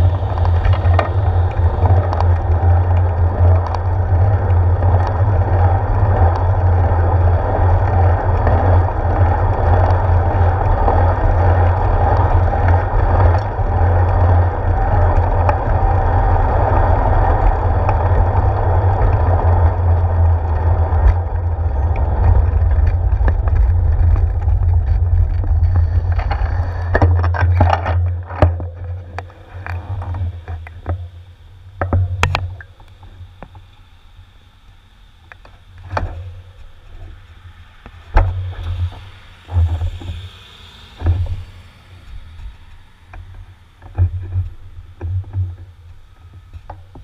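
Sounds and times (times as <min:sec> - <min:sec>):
bicycle road vibration rumble: 0:00.0 - 0:47.0
wind on camera: 0:00.0 - 0:47.0.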